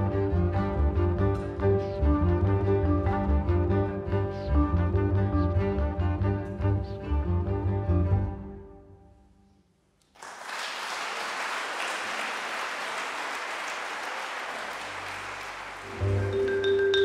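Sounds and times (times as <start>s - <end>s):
cello and double bass: 0.0s - 9.0s, 15.8s - 17.0s
audience applause: 10.1s - 17.0s.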